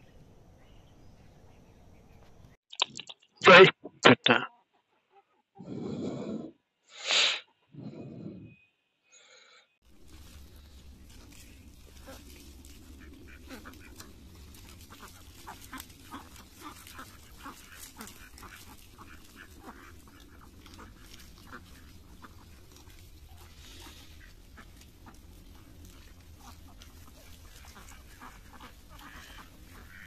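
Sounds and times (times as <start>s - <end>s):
ducks quacking: 11.2s - 30.0s.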